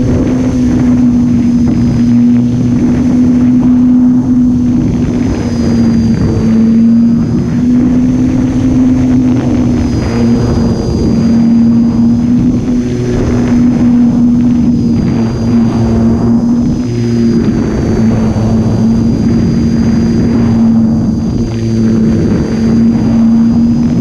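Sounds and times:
electric propeller motor droning: 0.0s - 24.0s.

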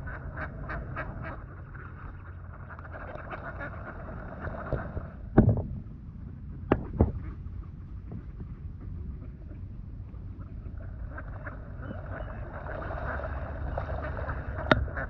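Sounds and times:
wind rumble on microphone: 0.0s - 15.0s
loud sharp knocks: 5.4s - 5.7s, 6.7s - 7.2s
swamphens calling: 10.6s - 15.0s.

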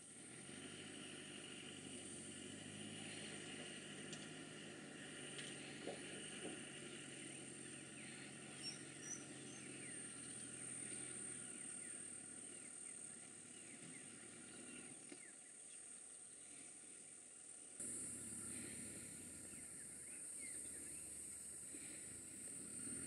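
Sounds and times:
insects droning: 0.0s - 23.0s
birds chirping: 5.3s - 16.9s, 17.6s - 23.0s.

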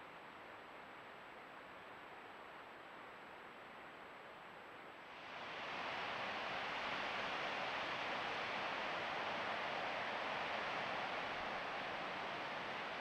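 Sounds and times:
creek flowing: 5.2s - 13.0s.

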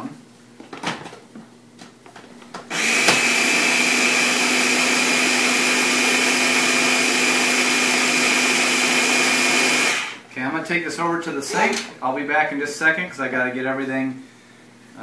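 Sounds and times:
blender whining: 2.7s - 10.3s.

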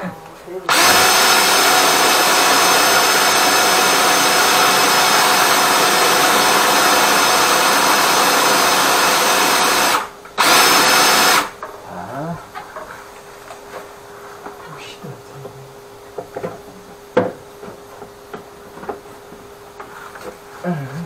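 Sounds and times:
drain-cleaning machine running: 0.7s - 11.5s.

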